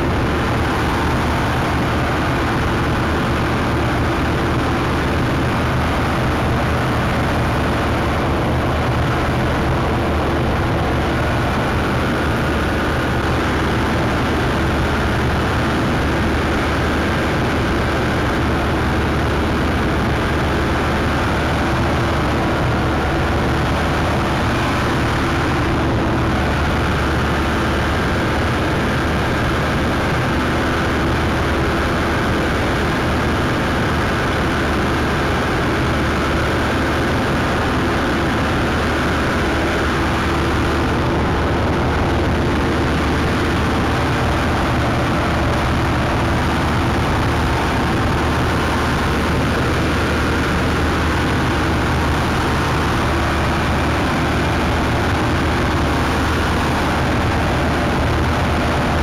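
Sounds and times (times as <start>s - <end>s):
combine harvester engine drone: 0.0s - 59.0s.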